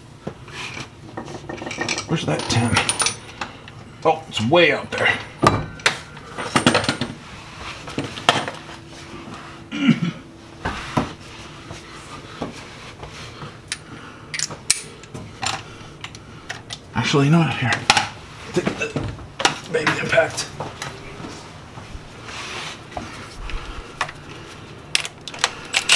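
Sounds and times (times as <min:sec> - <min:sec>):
hand tools clinking on metal: 0:01.6 - 0:03.6.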